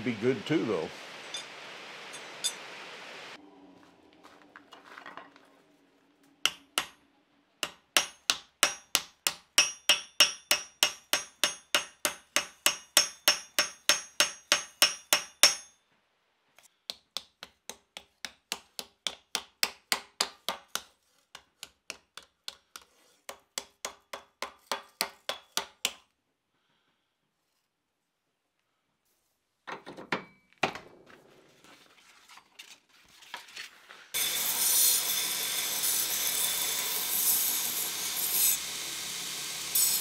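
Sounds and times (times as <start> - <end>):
hammer ringing on hot steel: 7.6 - 15.8.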